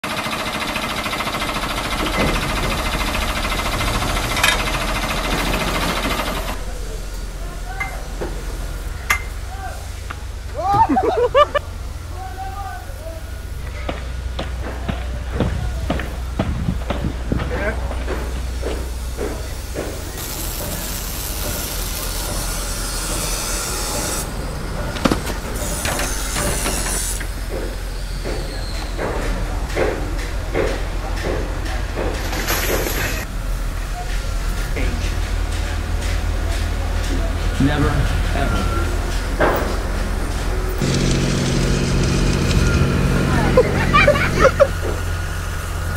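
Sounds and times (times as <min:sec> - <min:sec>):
construction machine rattling: 0:00.0 - 0:12.1, 0:27.2 - 0:45.9
gas hissing: 0:18.4 - 0:24.6, 0:40.5 - 0:45.9.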